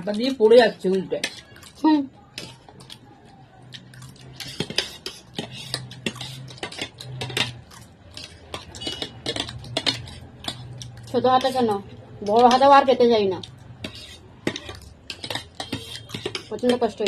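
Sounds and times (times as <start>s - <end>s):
spoons clinking on plates: 4.2s - 12.7s, 13.4s - 17.0s.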